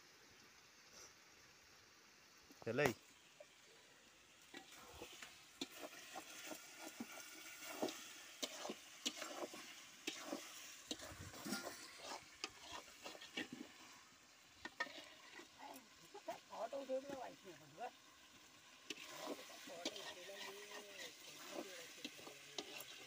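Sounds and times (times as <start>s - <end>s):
food sizzling: 0.0s - 23.0s
metal spatula scraping a pan: 4.5s - 16.0s, 18.8s - 23.0s.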